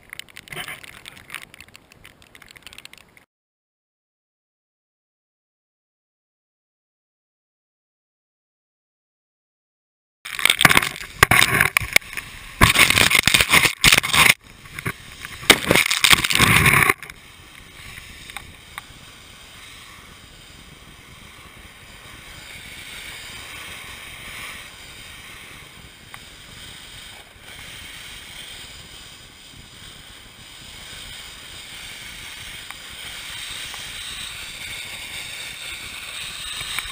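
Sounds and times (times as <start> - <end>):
board scraping down gravel slope: 10.3 - 36.9.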